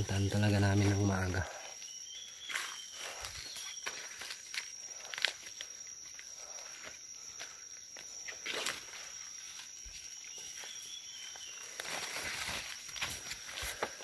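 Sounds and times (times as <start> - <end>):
foliage rustling: 0.0 - 14.0
footsteps crunching dry leaves: 8.4 - 14.0.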